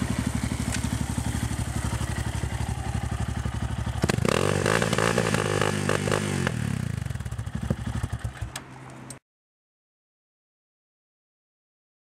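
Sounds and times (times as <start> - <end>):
motorcycle engine idling and revving: 0.0 - 9.2.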